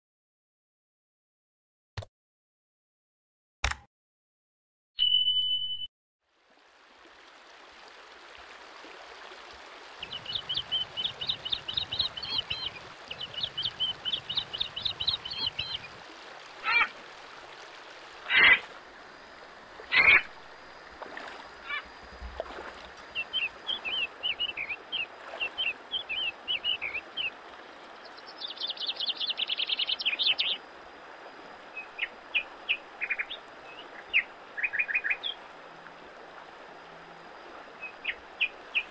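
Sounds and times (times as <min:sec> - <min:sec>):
river running over rocks: 0:06.6 - 0:33.0
birds chirping in trills: 0:10.0 - 0:16.0, 0:19.9 - 0:20.3, 0:21.6 - 0:22.0, 0:23.1 - 0:30.6, 0:31.6 - 0:35.4.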